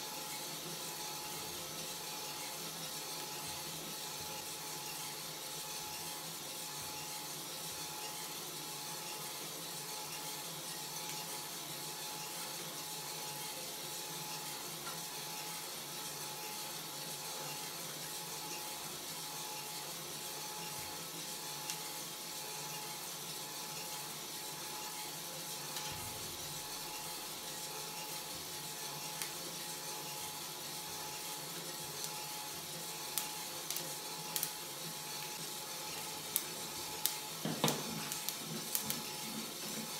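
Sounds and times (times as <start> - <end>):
coffee roaster motor whirring: 0.0 - 39.9
gas burner hissing: 24.8 - 39.9.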